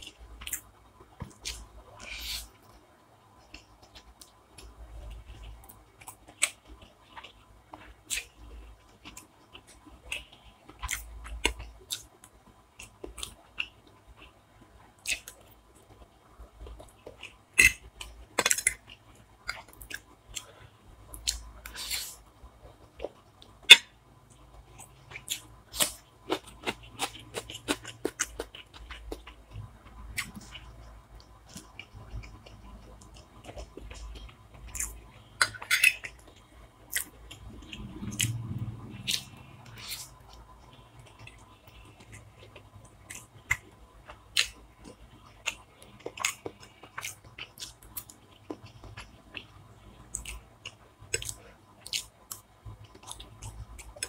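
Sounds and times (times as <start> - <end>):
person chewing and crunching food: 0.0 - 2.8, 3.4 - 54.0.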